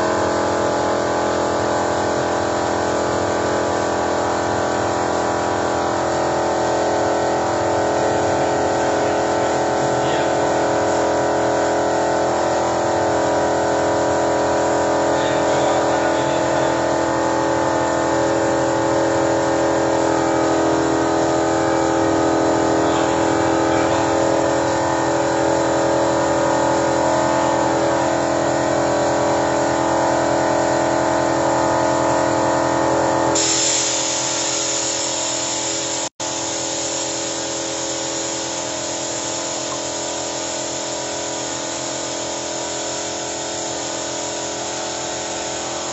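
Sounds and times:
compressed air spray hissing: 33.4s - 45.9s.

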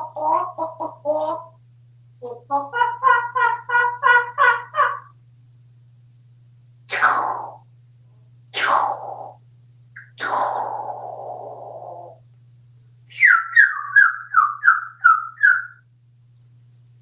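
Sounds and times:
parrot whistling descending notes: 13.1s - 15.8s.

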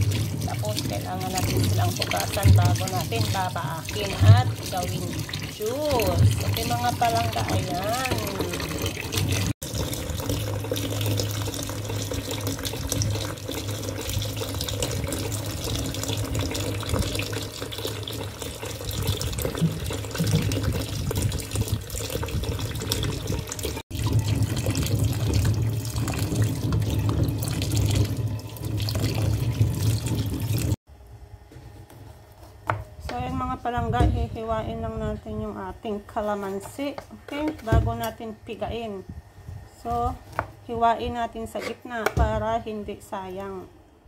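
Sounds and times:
tap water splashing on fruit: 0.0s - 30.8s.

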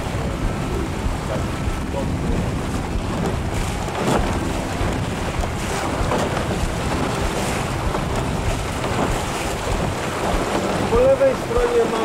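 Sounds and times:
river water rushing: 0.0s - 12.0s
wind noise on microphone: 0.0s - 12.0s.

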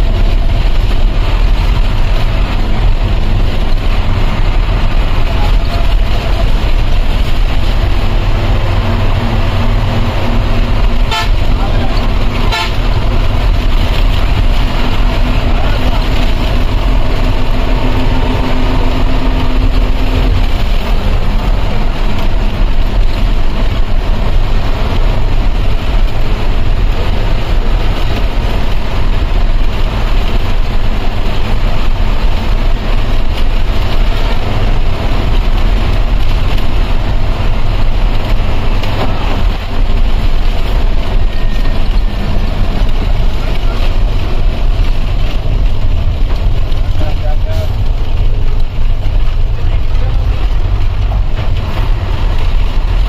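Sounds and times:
coach engine and road noise: 0.0s - 53.0s.

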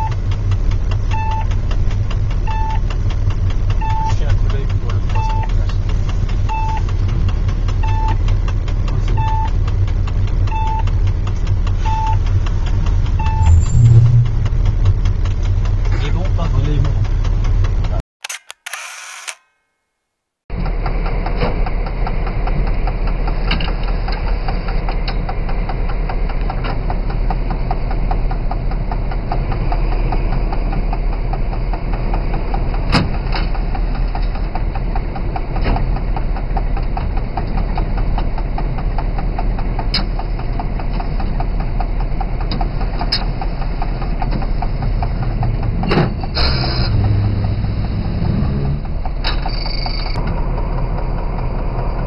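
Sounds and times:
diesel locomotive engine throbbing: 0.0s - 18.0s, 20.5s - 52.0s
sharp clicks: 18.2s - 19.5s.

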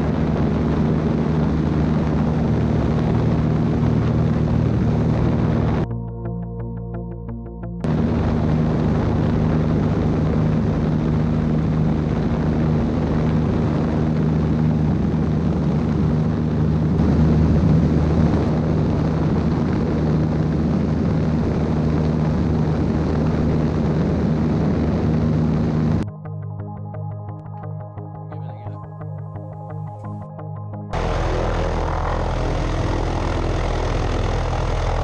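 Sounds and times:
light aircraft engine droning: 0.0s - 26.0s, 31.0s - 35.0s
rush of airflow: 31.0s - 35.0s.

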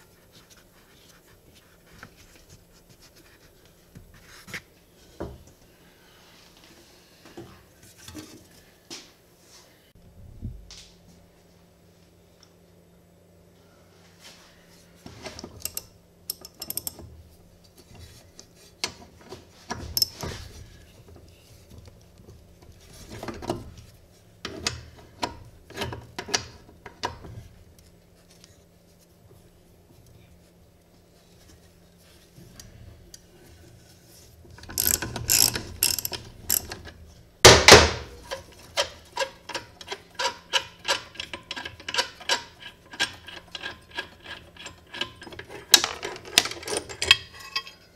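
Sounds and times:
ratchet wrench clicking: 34.8s - 36.7s.

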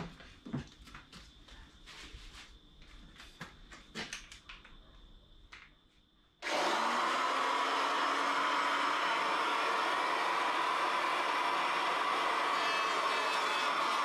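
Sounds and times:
hand tool trimming wood: 6.4s - 14.0s
power tool running: 6.4s - 14.0s.

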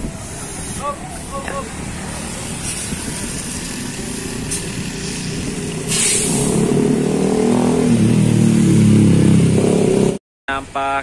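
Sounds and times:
bus diesel engine running: 0.0s - 7.3s
air hiss burst: 0.2s - 0.9s, 2.6s - 3.2s, 4.4s - 6.6s.

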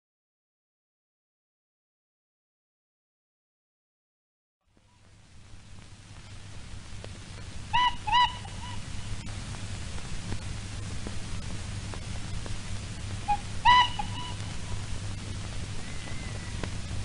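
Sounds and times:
old film soundtrack hiss: 4.6s - 17.0s
steam whistle toots: 13.3s - 14.4s.

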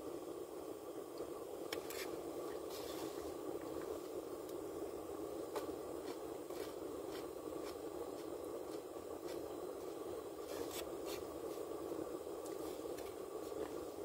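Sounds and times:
car interior hiss: 1.8s - 4.3s.

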